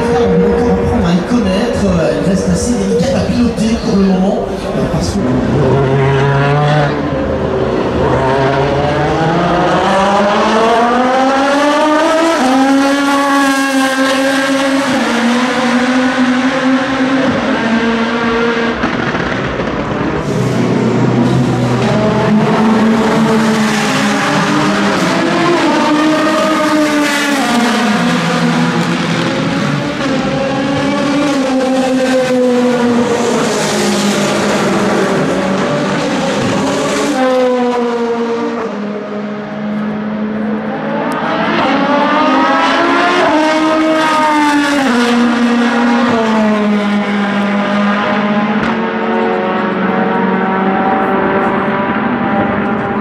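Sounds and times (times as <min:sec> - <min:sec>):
racing car engine shifting gears: 0:05.1 - 0:53.0.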